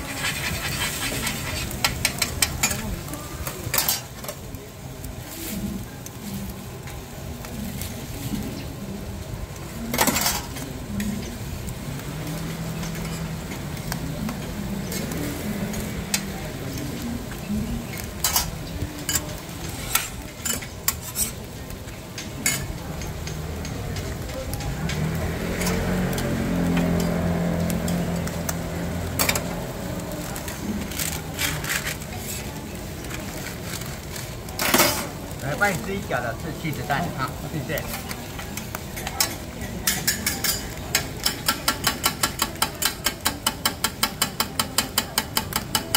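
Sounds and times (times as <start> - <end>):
tongs and spatula scraping metal: 0.0 - 4.4, 17.7 - 21.6, 22.2 - 45.9
pancakes frying on griddle: 0.0 - 45.9.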